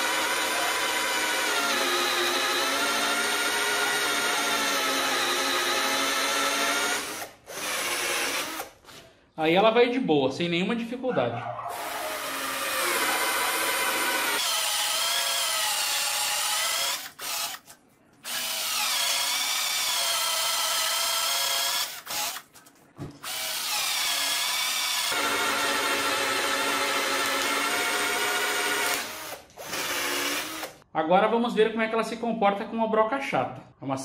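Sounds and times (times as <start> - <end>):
cordless drill boring wood: 0.0 - 8.7, 11.7 - 17.6, 18.2 - 22.4, 23.2 - 30.8.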